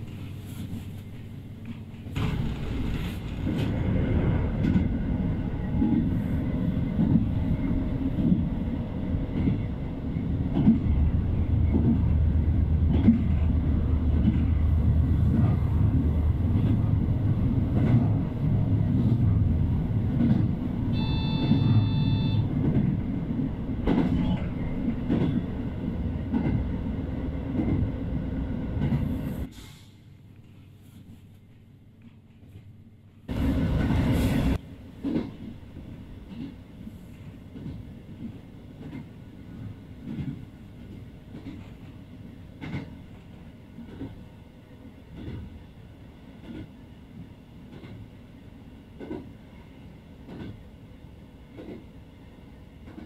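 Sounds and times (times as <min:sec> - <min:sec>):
railcar rumble: 0:00.0 - 0:53.0
wheels clicking over rails: 0:01.6 - 0:04.9
brief tone: 0:20.9 - 0:22.5.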